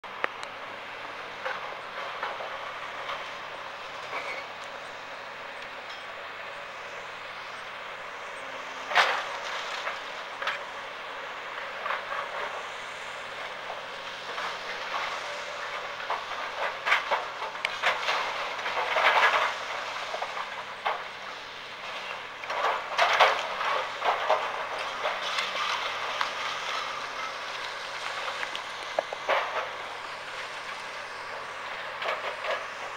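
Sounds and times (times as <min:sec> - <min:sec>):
steady rumbling hiss: 0:00.0 - 0:32.9
debris crashing and clattering: 0:16.0 - 0:21.0, 0:22.5 - 0:28.5.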